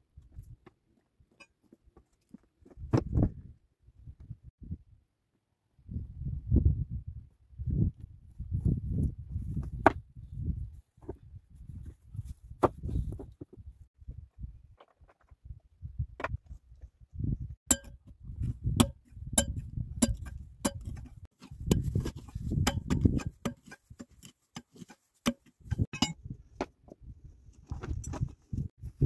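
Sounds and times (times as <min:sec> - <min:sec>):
metal pick striking stone: 0:17.7 - 0:18.1, 0:18.7 - 0:26.2.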